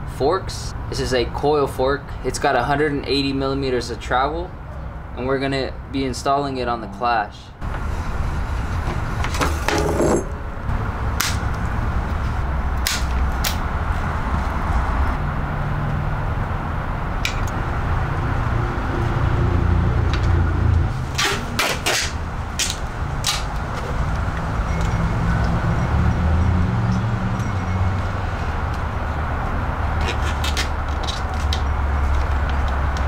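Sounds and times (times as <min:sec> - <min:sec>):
tape ripping off a roll: 0:21.1 - 0:23.5, 0:30.0 - 0:32.4.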